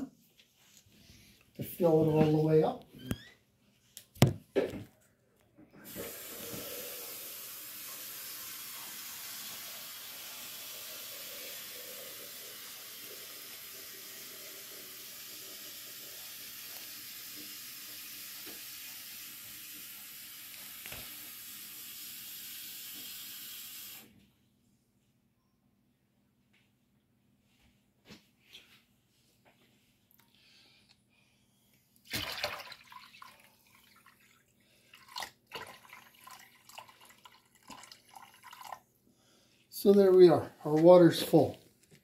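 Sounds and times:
water pouring into plastic tank: 0:32.0 - 0:38.9.

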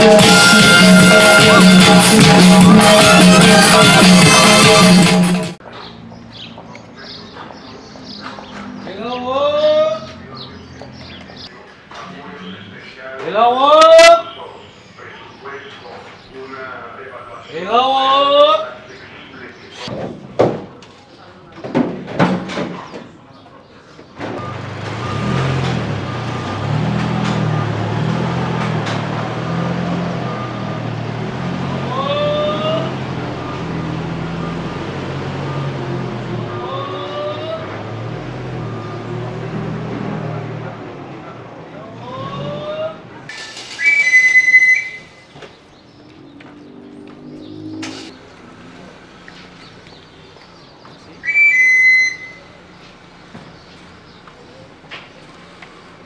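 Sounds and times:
truck engine running: 0:00.0 - 0:08.5, 0:24.4 - 0:43.8, 0:45.4 - 0:51.3, 0:52.1 - 0:56.0
backup alarm beeping: 0:24.4 - 0:28.6, 0:30.2 - 0:31.1, 0:32.4 - 0:36.7, 0:38.5 - 0:39.4
pan-pipe whistle high notes: 0:43.7 - 0:45.3, 0:51.2 - 0:52.6.

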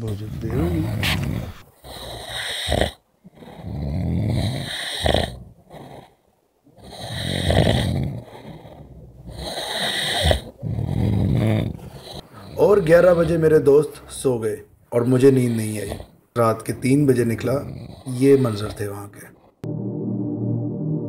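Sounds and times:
person snoring: 0:00.2 - 0:06.1, 0:06.8 - 0:13.4.

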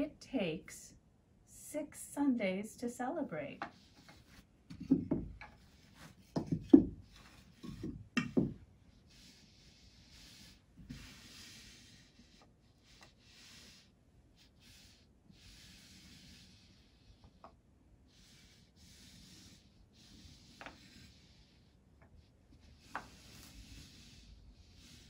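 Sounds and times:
pieces sliding on carpet: 0:03.6 - 0:08.5, 0:09.1 - 0:12.2, 0:22.8 - 0:25.0.

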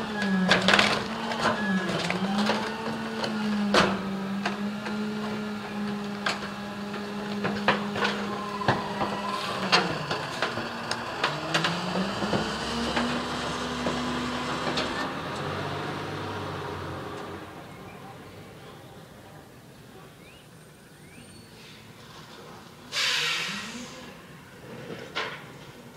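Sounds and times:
garbage truck hydraulic whine: 0:00.0 - 0:15.1
trash cracking and knocking: 0:00.2 - 0:05.4.

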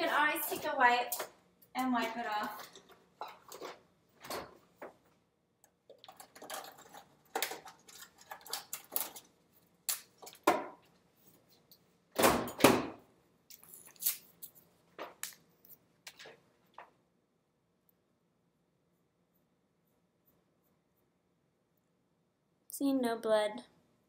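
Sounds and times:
items clinking in a fridge: 0:05.9 - 0:09.3.

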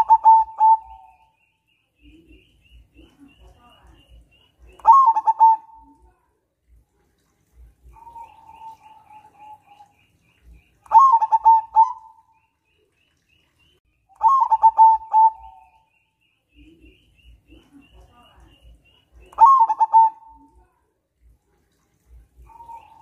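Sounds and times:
dove cooing: 0:00.0 - 0:01.3, 0:04.8 - 0:06.1, 0:07.8 - 0:09.9, 0:10.9 - 0:12.2, 0:14.2 - 0:15.8, 0:19.3 - 0:20.6, 0:22.4 - 0:23.0.

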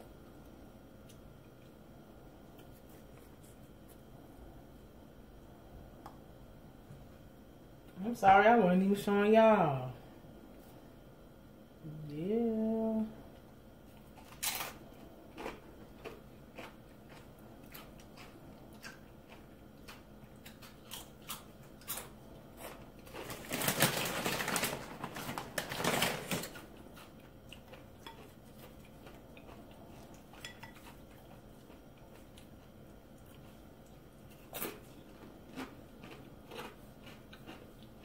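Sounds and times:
tortilla chips crunching: 0:14.0 - 0:38.0
crinkling: 0:15.4 - 0:27.8.

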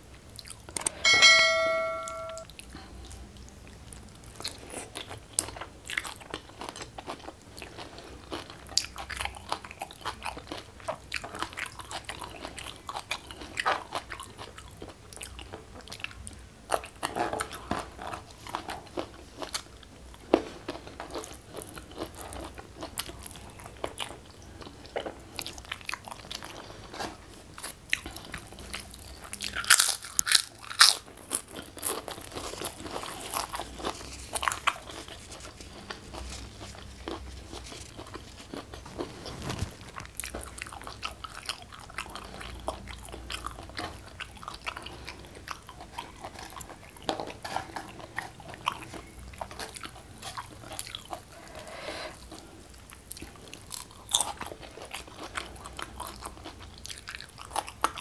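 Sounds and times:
person chewing: 0:02.5 - 0:58.0
cracker crunching: 0:25.8 - 0:51.3.

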